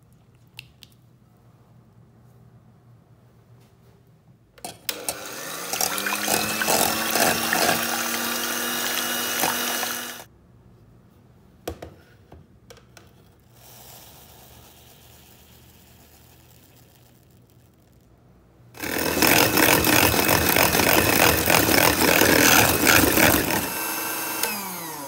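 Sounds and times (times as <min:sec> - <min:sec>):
electric hand mixer whisking: 0:04.9 - 0:10.3, 0:18.8 - 0:25.0
sugar pouring hiss: 0:13.8 - 0:17.8.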